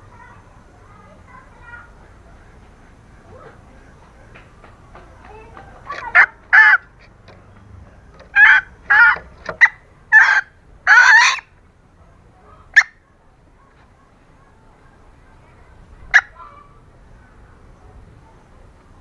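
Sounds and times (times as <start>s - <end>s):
junglefowl hen calling: 5.3s - 7.4s, 8.1s - 11.6s, 12.4s - 13.0s, 16.0s - 17.4s.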